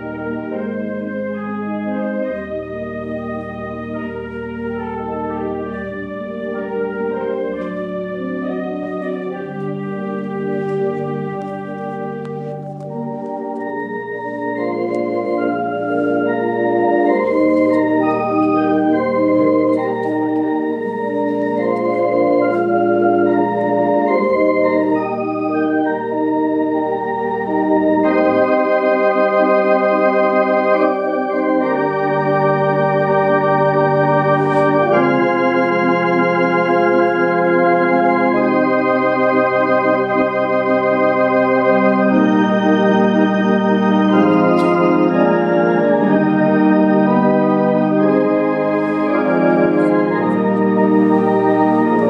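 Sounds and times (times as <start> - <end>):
theater organ playing slow chords: 0.0 - 52.0.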